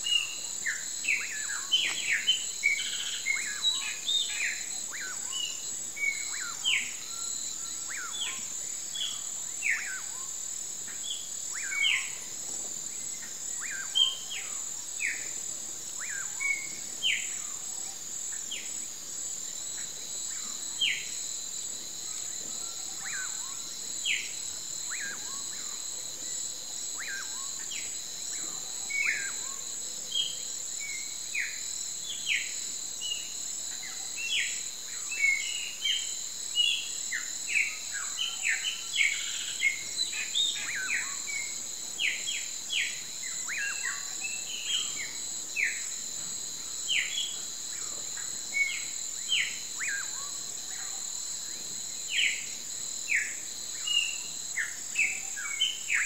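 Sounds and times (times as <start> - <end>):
insects droning: 0.0 - 56.0.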